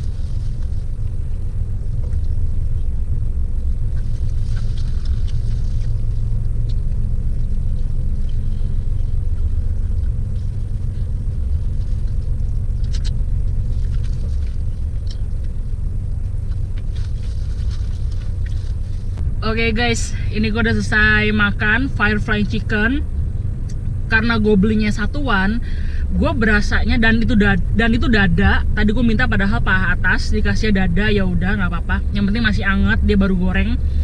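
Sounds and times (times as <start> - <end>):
car engine idling: 0.0 - 34.0
chewing crispy food: 3.6 - 19.2.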